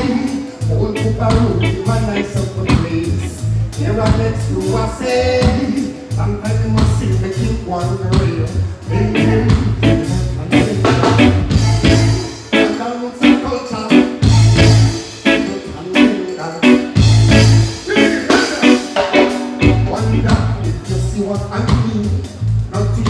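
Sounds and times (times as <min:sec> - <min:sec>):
deep pulsing bass line: 0:00.0 - 0:12.5, 0:14.2 - 0:15.0, 0:17.0 - 0:17.9, 0:19.6 - 0:23.0
live reggae band: 0:00.0 - 0:23.0.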